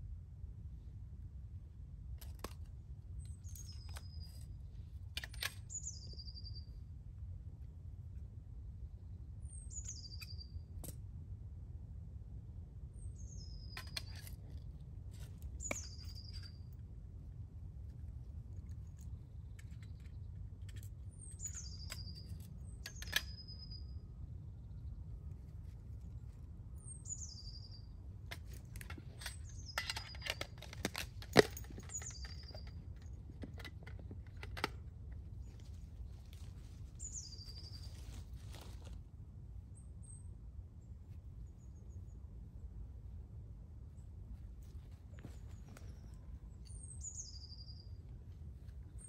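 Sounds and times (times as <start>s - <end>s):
low background rumble: 0.0s - 49.0s
small bird chirping: 3.2s - 6.9s, 9.4s - 10.9s, 13.0s - 16.8s, 18.5s - 25.0s, 25.6s - 34.6s, 35.3s - 38.8s, 44.7s - 49.0s
small bird high calls: 9.5s - 10.7s, 19.5s - 24.9s, 26.8s - 28.0s, 35.4s - 38.8s, 45.2s - 48.2s
handling clicks: 28.3s - 35.3s
rustle in dry leaves: 35.4s - 39.1s.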